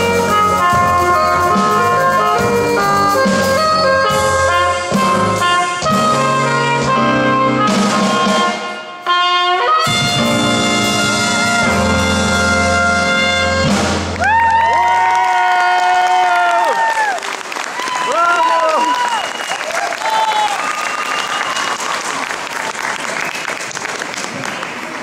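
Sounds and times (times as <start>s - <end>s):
bass guitar: 0.0s - 8.6s, 9.8s - 14.9s
saxophone: 0.0s - 14.2s
drum kit: 0.0s - 14.9s
trumpet lead: 0.0s - 14.9s.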